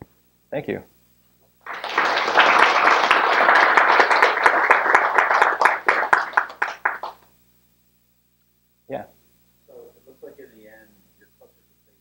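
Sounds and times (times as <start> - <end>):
audience applauding: 1.6 - 7.2.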